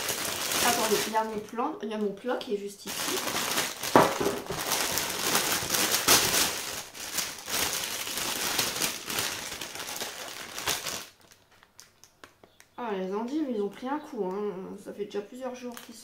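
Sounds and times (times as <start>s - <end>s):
packaging crinkling: 0.0s - 1.5s, 2.8s - 12.6s.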